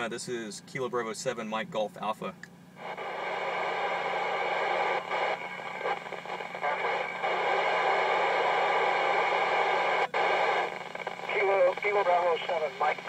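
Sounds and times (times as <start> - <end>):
radio static hiss: 2.8 - 13.0.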